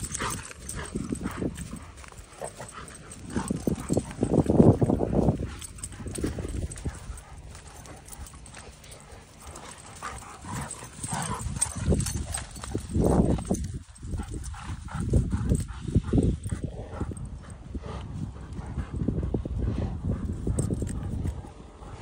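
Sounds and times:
paws scuffling on grass: 0:00.0 - 0:19.0
dogs growling and grunting: 0:00.0 - 0:22.0.

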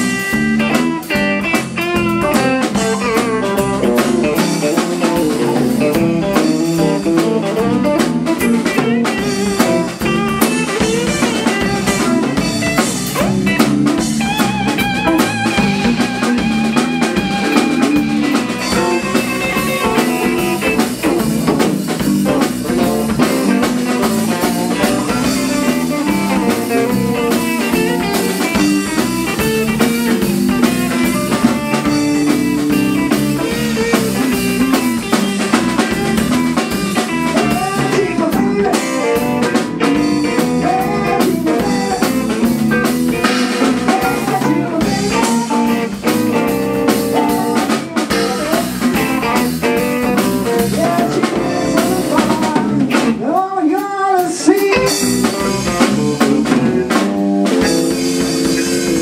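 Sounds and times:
live blues band playing: 0:00.0 - 0:59.0.

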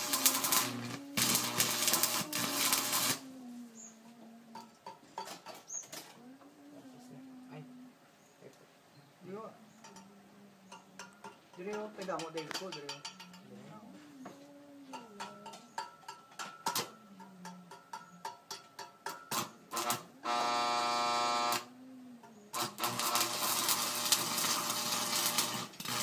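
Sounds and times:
electrode tapping steel plate: 0:00.0 - 0:03.2
loud welding buzz: 0:00.0 - 0:03.2, 0:19.3 - 0:21.7, 0:22.5 - 0:26.0
welding arc crackling: 0:00.0 - 0:03.2, 0:19.3 - 0:21.7, 0:22.5 - 0:26.0.

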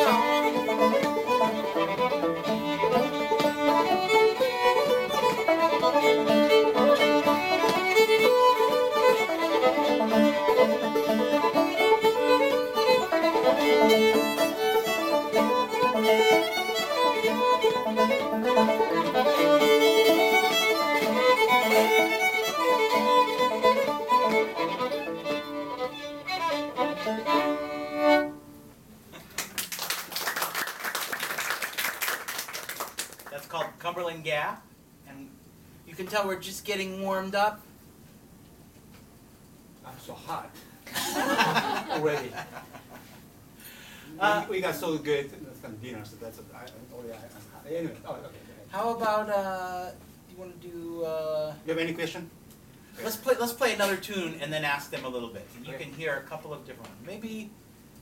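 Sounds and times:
banjo accompaniment: 0:00.0 - 0:28.3
fiddle tune: 0:00.0 - 0:28.7
people clapping: 0:29.2 - 0:33.7.

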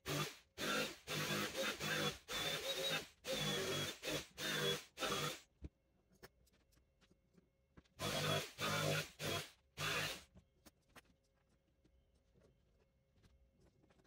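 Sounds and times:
power tool whining on wood: 0:00.1 - 0:05.4.

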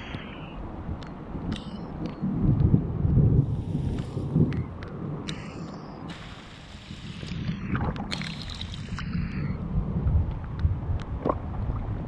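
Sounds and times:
wind rumble on microphone: 0:00.0 - 0:12.0
pond water sloshing and splashing: 0:07.7 - 0:09.1.

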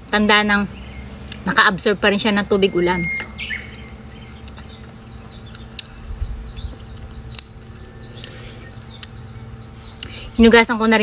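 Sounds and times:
small birds chirping: 0:00.0 - 0:11.0
sharp clicks: 0:03.2 - 0:04.7, 0:05.5 - 0:07.6.

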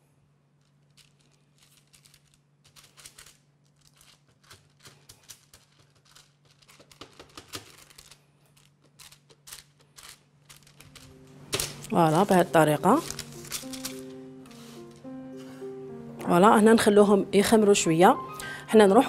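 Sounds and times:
baking paper crinkling: 0:00.5 - 0:15.6.

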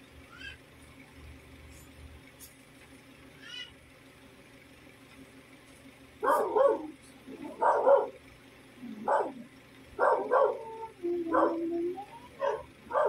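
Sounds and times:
dog barking: 0:06.2 - 0:08.2, 0:09.0 - 0:11.8, 0:12.4 - 0:13.0.

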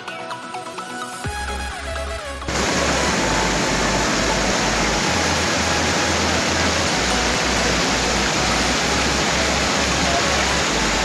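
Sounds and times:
stream rushing over boulders: 0:02.5 - 0:11.0.

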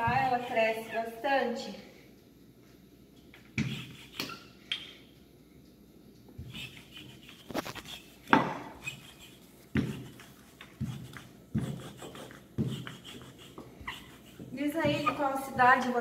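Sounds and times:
rolling pin rolling dough: 0:00.0 - 0:01.2, 0:03.5 - 0:04.4, 0:06.4 - 0:16.0.

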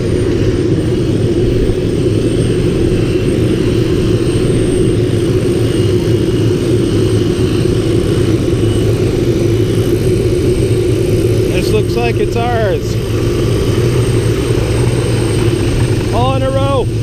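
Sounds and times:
helicopter engine and rotor drone: 0:00.0 - 0:17.0.

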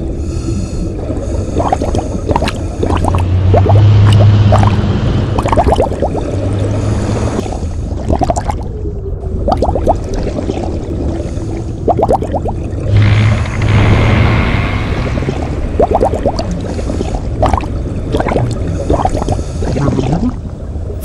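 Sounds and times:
low hum: 0:00.0 - 0:21.0
air bubbles gurgling underwater: 0:01.0 - 0:13.1, 0:15.2 - 0:20.6.

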